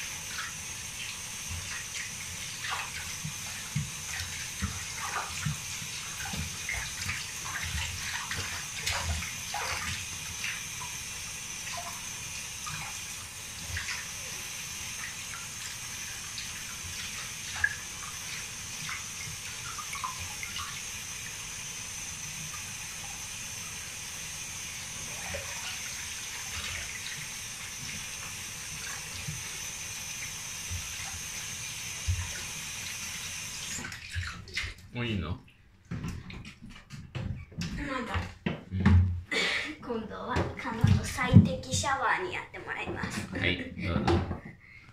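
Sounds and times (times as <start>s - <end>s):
water splashing in a basin: 0.0s - 35.4s
running tap water: 0.0s - 44.9s.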